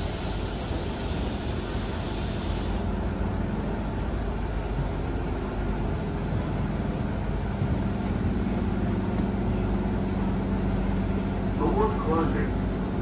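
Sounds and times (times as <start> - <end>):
electric train equipment humming: 0.0 - 13.0.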